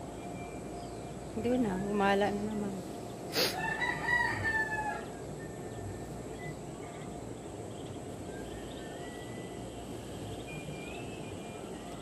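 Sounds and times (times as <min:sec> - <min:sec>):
steady outdoor background: 0:00.0 - 0:12.0
ducklings peeping: 0:04.3 - 0:12.0.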